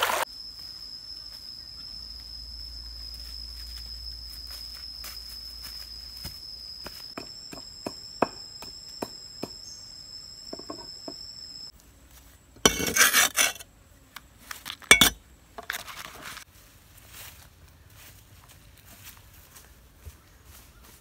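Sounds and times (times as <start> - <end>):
high-pitched insect drone: 0.2 - 11.7
utensils scraping on wooden table: 12.6 - 13.6.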